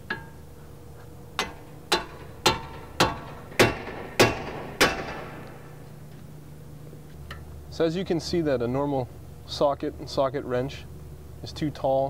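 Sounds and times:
hammer striking metal: 0.1s - 0.4s, 1.4s - 5.9s.

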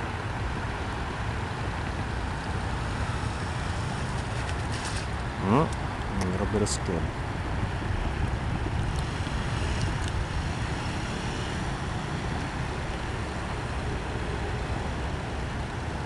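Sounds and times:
wind rumble on microphone: 7.0s - 16.0s.

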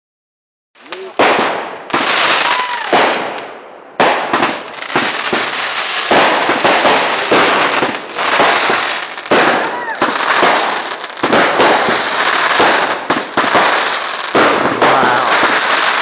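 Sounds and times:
firework bangs: 0.8s - 16.0s
crackling hiss of sparks: 1.9s - 3.1s, 4.6s - 16.0s.

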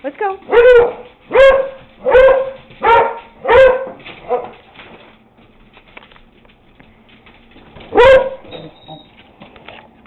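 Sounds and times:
dog barking: 0.5s - 4.6s, 7.9s - 8.6s.

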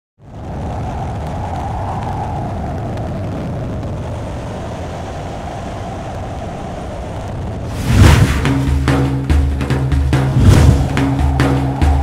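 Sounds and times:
aircraft engine drone: 3.6s - 12.0s.

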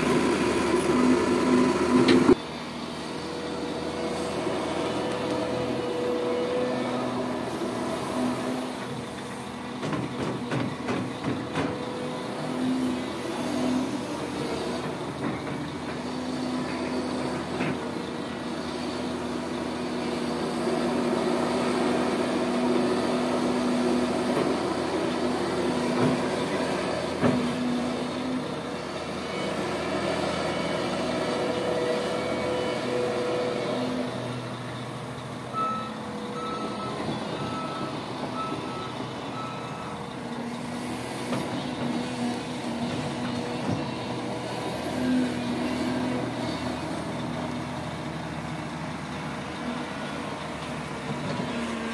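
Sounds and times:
hydraulic working noise: 0.0s - 47.9s
excavator diesel engine under load: 0.0s - 51.9s.

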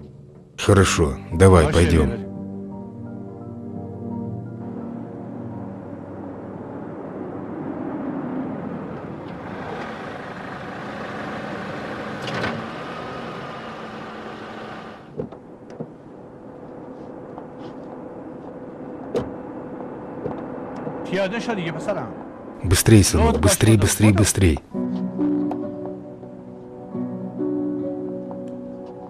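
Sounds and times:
street traffic: 4.8s - 24.8s.

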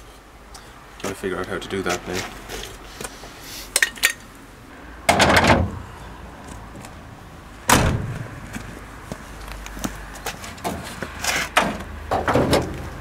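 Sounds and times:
loud thuds: 7.7s - 8.3s.

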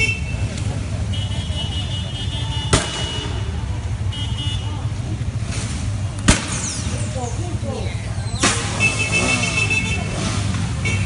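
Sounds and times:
gunshot bangs: 6.3s - 6.8s.

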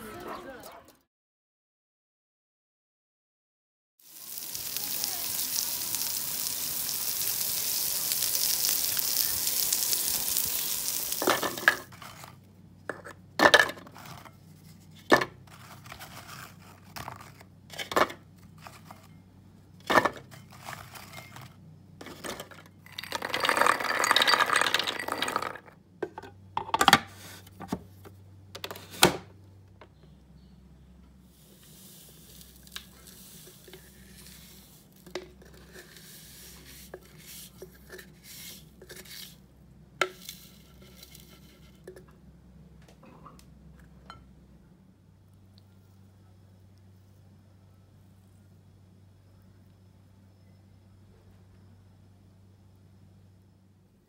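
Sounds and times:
vegetables sizzling on grill: 4.0s - 12.3s, 31.3s - 39.4s.

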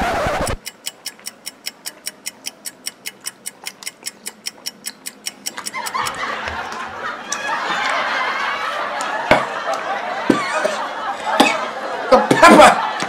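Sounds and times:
fast clock ticking: 0.5s - 6.4s.

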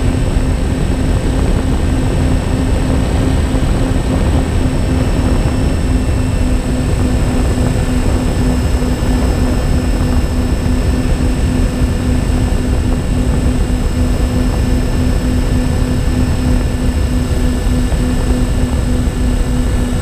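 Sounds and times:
model plane motors droning: 0.0s - 20.0s
wind rumble on microphone: 0.0s - 20.0s.

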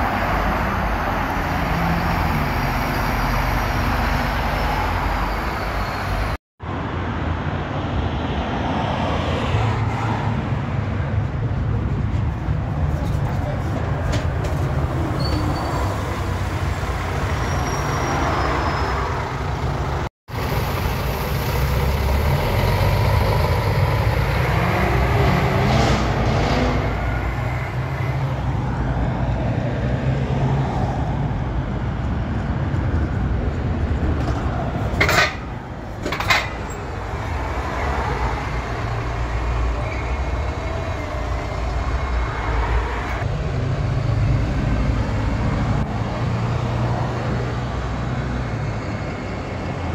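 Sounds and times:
bus pulling away whine: 0.0s - 6.8s, 14.5s - 49.9s
bus engine rumble: 0.0s - 49.9s.

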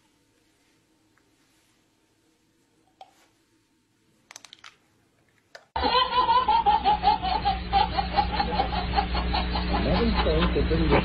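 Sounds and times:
steady low hum: 5.8s - 11.0s.

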